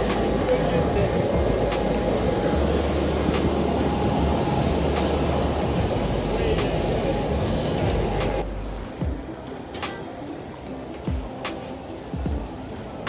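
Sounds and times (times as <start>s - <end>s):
loud mechanical noise: 0.0s - 8.7s
high-pitched whine: 0.0s - 11.1s.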